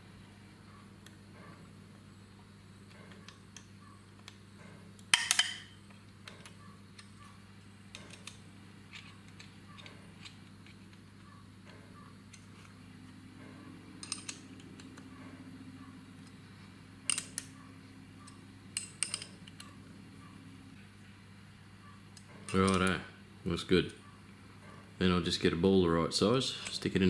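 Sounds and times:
low steady hum: 0.0s - 27.0s
metal tool clicks and clinks: 14.0s - 15.0s, 17.0s - 17.6s, 18.2s - 19.8s, 22.2s - 23.0s.

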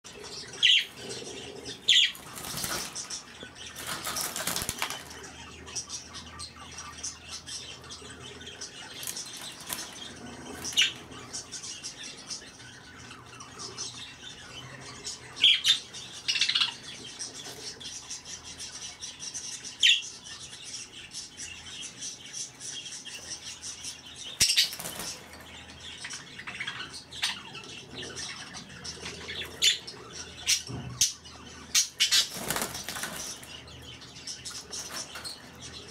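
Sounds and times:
budgerigars chattering: 0.1s - 35.9s.

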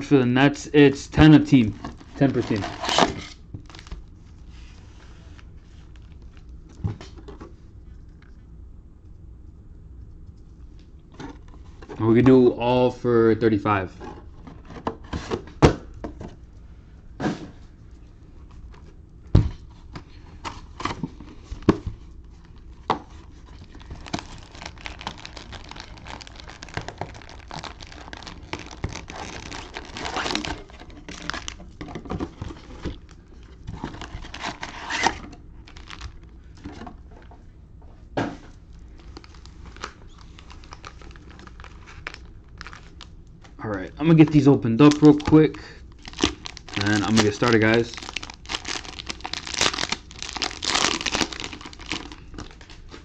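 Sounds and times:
cellophane wrappers crinkling: 1.5s - 4.2s, 5.8s - 6.5s, 20.5s - 36.4s, 38.7s - 53.0s.

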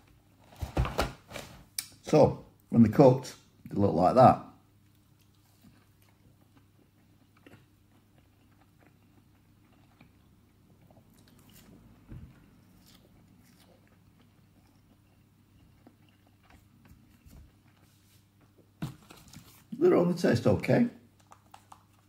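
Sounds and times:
chewing and soft crunches: 4.8s - 19.8s.

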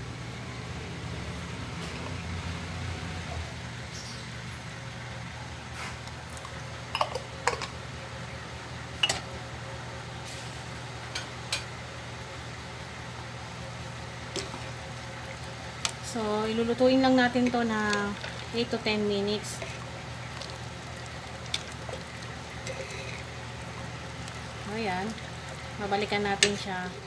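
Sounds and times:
pot of water boiling: 0.1s - 27.0s.

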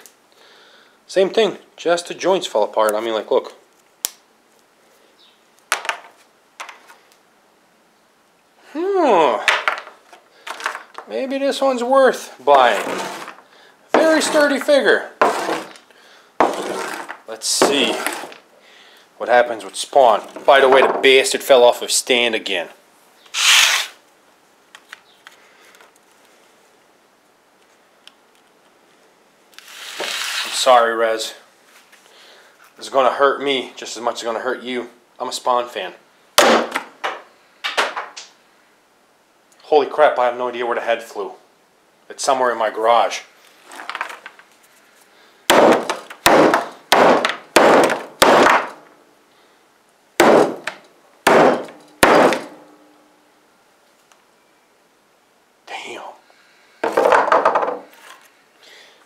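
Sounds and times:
hammer whacking plastic figure: 50.2s - 52.6s.

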